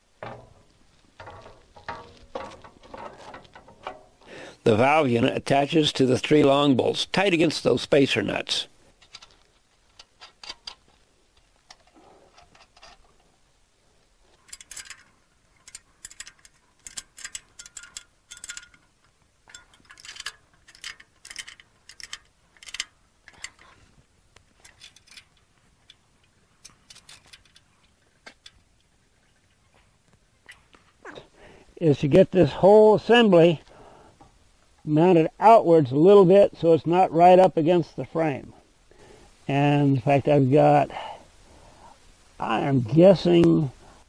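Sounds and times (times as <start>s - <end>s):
light metal clinks: 14.4s - 23.8s
ratcheting wrench clicking: 14.5s - 18.8s, 19.5s - 23.7s.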